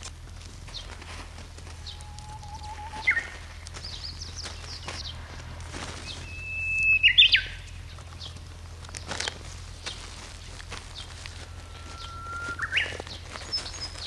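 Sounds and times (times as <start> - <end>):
faint bird chirps: 1.7 - 5.2, 5.8 - 8.4, 10.9 - 14.0
songbird whistling song: 1.7 - 5.2, 5.8 - 8.4, 10.9 - 14.0.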